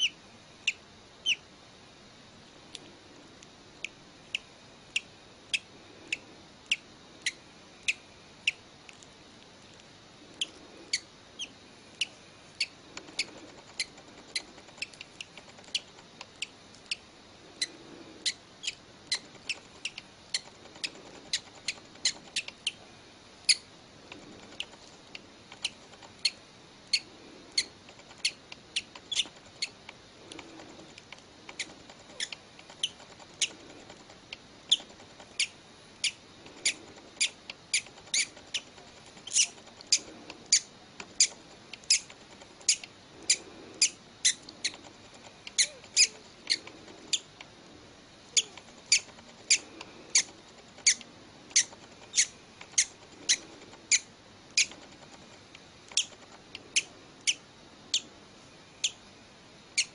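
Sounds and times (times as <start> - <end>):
hatchling bird peeping: 0.0 - 1.4, 4.3 - 8.6, 10.3 - 22.8, 25.5 - 29.8, 34.7 - 44.8, 45.5 - 47.3, 48.3 - 54.8, 55.9 - 58.1, 58.8 - 59.0.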